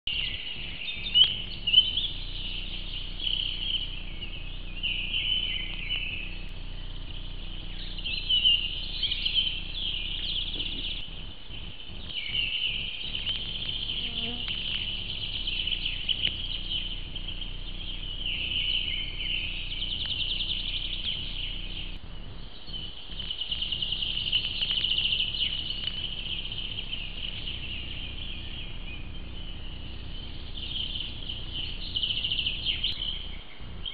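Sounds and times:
birds singing and trilling: 0:00.1 - 0:33.9.

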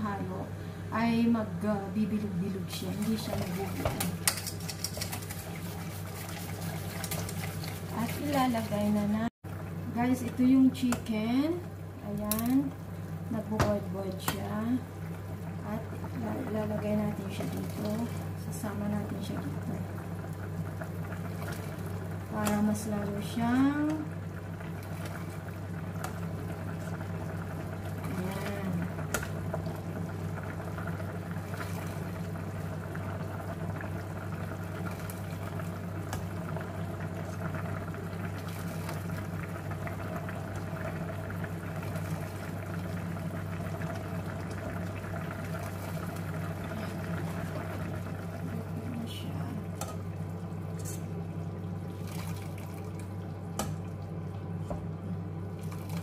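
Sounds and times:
pots simmering: 0:00.0 - 0:56.0
steady low hum: 0:00.0 - 0:56.0
broth pouring through strainer: 0:03.5 - 0:08.8.

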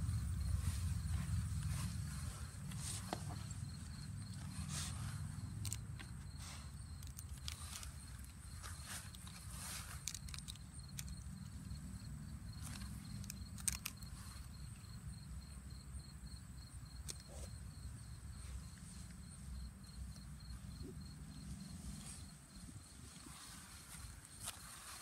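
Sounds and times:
low rumble: 0:00.0 - 0:04.1
high insect chirp: 0:00.0 - 0:25.0
light clicks and rustles: 0:00.8 - 0:14.9.

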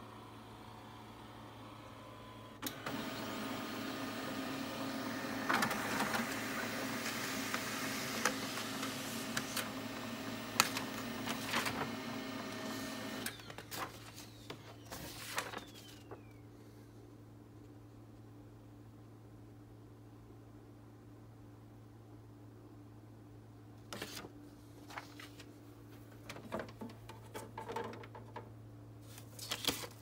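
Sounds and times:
printer motors running: 0:00.0 - 0:16.1.

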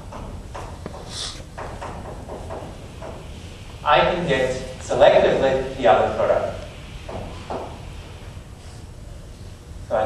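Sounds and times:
low room hum: 0:00.0 - 0:10.0
chalk on blackboard: 0:00.8 - 0:01.5.

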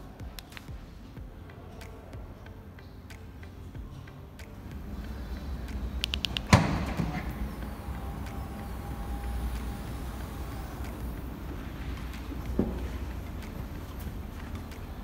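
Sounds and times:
faint motor whine: 0:03.7 - 0:15.0
tailgate clicks: 0:05.9 - 0:08.5
latch clunk: 0:06.1 - 0:07.5.

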